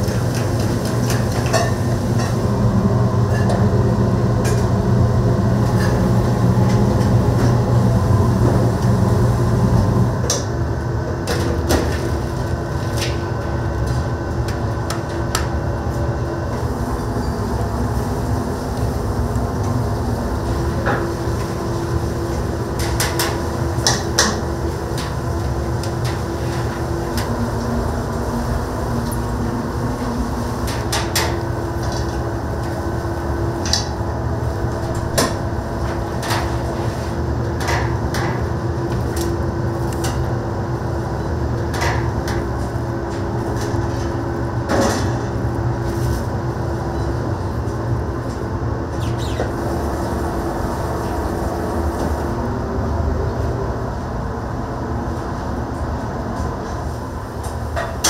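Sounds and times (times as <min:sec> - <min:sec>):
utensils and dishes clinking: 0:00.0 - 0:02.4
constant hum: 0:00.0 - 0:58.0
low kitchen roar: 0:00.0 - 0:58.0.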